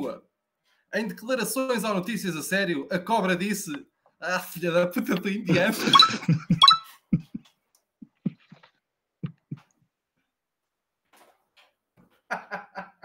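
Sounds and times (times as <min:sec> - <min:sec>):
man's stifled laughter: 0:05.5 - 0:07.5, 0:09.2 - 0:09.7, 0:12.3 - 0:13.0.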